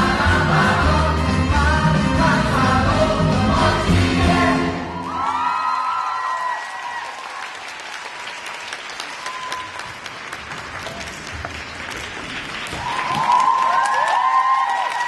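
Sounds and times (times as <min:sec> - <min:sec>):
high-pitched cheers: 0:04.8 - 0:07.6, 0:09.1 - 0:09.9, 0:12.8 - 0:15.0
audience applauding: 0:05.0 - 0:15.0.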